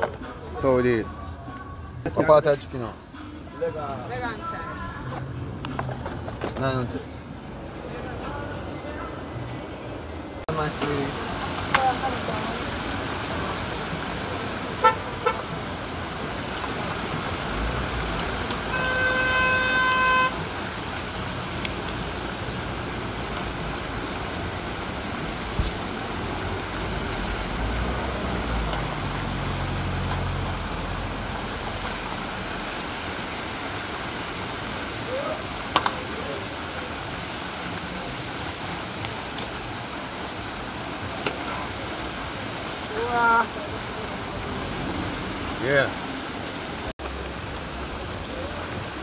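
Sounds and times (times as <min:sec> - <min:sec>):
car horn: 0:14.7 - 0:15.6, 0:18.6 - 0:20.5
vehicle engine rumbling past: 0:20.4 - 0:34.1.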